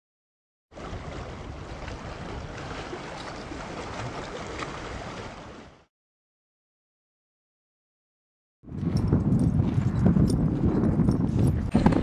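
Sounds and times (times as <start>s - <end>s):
water splashing over rocks: 0.8s - 5.8s
wind on microphone: 8.6s - 12.0s.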